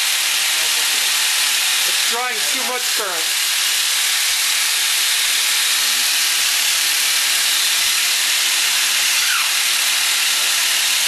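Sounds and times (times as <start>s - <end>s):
pulse motor hissing: 0.0s - 11.0s.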